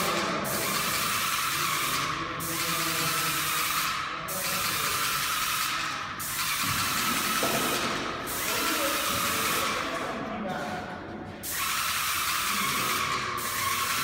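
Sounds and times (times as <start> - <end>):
paint sprayer hissing: 0.0 - 10.0, 11.4 - 14.0.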